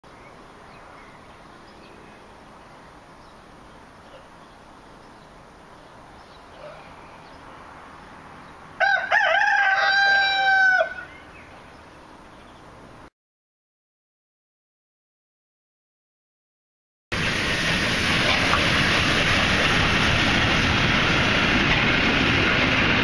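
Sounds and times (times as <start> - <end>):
rooster crowing: 8.8 - 11.2.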